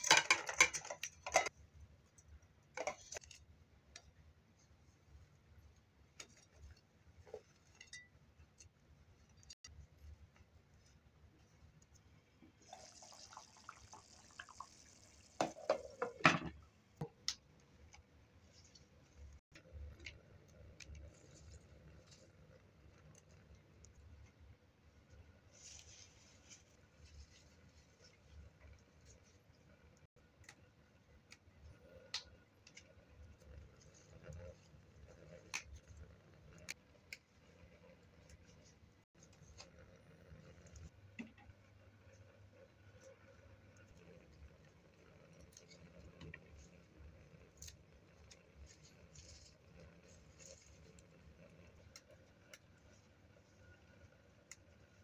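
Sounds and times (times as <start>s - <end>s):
stew bubbling in a pot: 11.3s - 17.6s.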